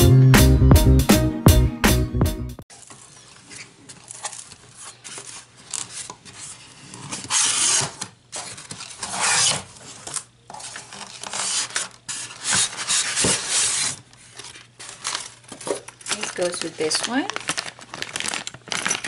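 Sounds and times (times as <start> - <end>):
styrofoam scraping cardboard box: 2.9 - 15.3.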